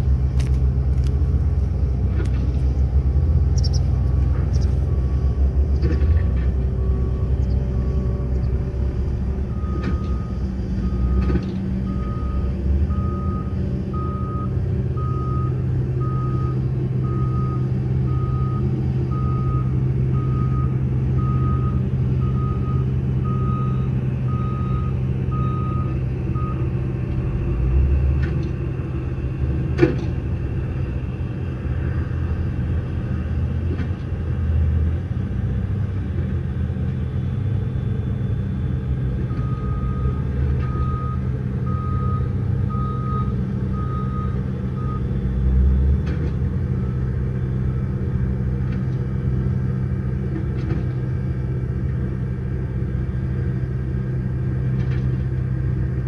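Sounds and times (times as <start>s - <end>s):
diesel engine running: 0.0s - 56.0s
reversing alarm beeps: 6.7s - 8.3s, 9.5s - 26.8s, 38.0s - 45.4s.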